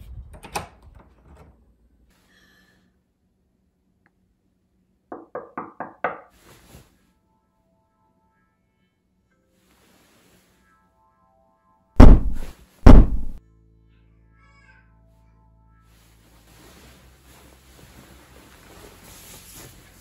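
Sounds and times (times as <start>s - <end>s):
quick sharp knocks: 12.0s - 13.4s.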